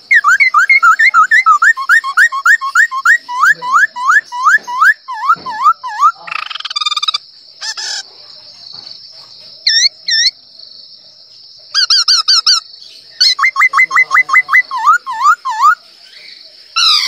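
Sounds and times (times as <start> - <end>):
man imitating bird calls: 0.0 - 7.2, 13.2 - 15.8.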